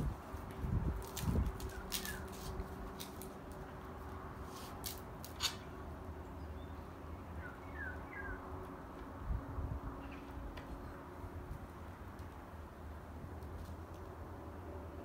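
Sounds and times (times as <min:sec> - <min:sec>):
flatbread tearing and rustling: 0:00.0 - 0:03.8.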